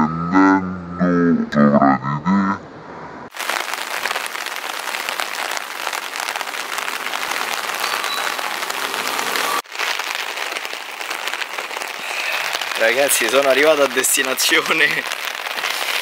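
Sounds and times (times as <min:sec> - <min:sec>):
steady rain falling: 0:03.3 - 0:16.0.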